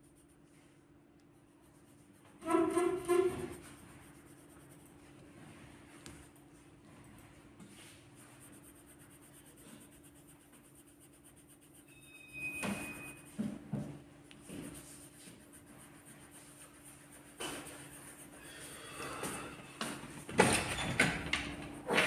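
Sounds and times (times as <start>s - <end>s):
pencil scratching on paper: 1.3s - 13.8s, 14.4s - 19.2s
high squeak: 2.4s - 3.6s, 11.8s - 13.4s.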